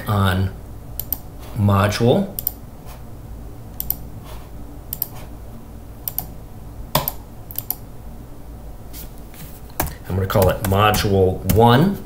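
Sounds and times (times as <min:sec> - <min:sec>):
faint steady low hum: 0:00.0 - 0:12.0
mouse clicks: 0:02.4 - 0:02.6, 0:03.8 - 0:04.0, 0:04.9 - 0:05.2, 0:06.0 - 0:06.3, 0:07.0 - 0:07.8.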